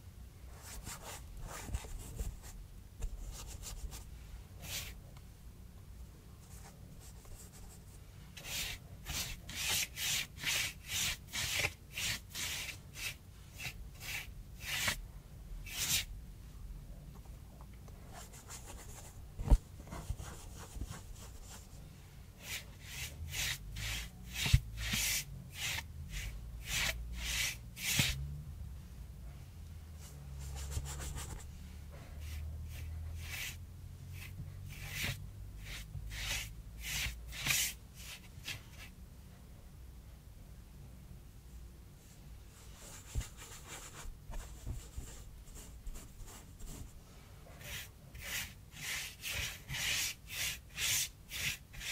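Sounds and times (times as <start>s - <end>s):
paintbrush scrubbing cardboard: 6.5s - 15.0s, 18.1s - 21.8s, 22.4s - 28.2s, 30.2s - 33.6s, 34.2s - 38.8s, 42.6s - 51.9s.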